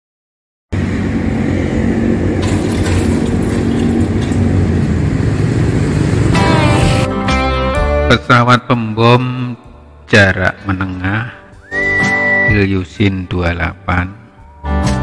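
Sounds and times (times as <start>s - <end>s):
engine running with low rumble: 0.7s - 7.1s
music: 6.3s - 15.0s.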